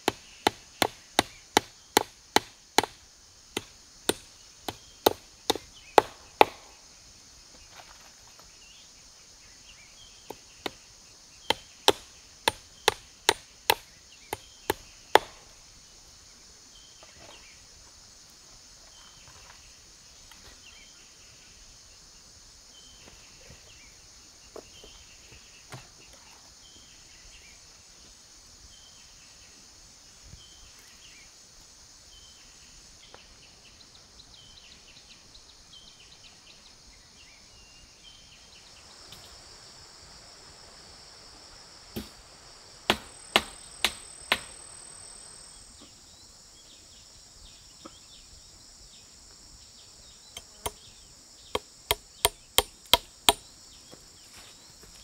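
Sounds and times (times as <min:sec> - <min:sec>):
insects droning: 0:00.0 - 0:55.0
hammer blows on wooden post: 0:42.9 - 0:44.7.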